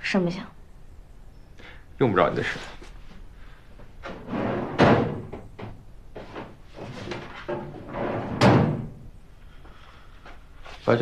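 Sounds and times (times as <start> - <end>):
cabinet door opening and shutting: 4.0 - 9.1.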